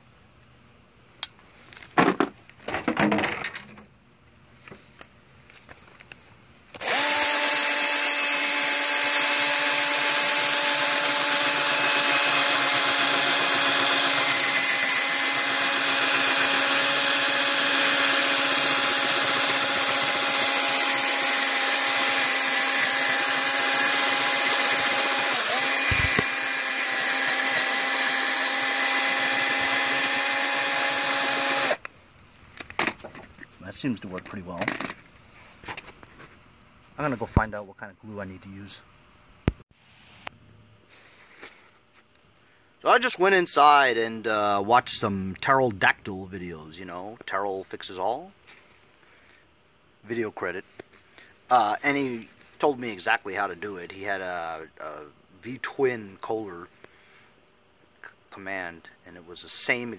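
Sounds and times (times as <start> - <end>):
handheld power tool running: 6.8 - 31.9.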